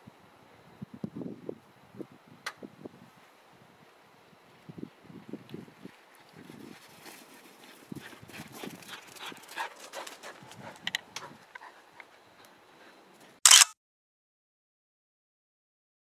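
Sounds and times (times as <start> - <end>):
puppies panting: 7.2 - 13.0.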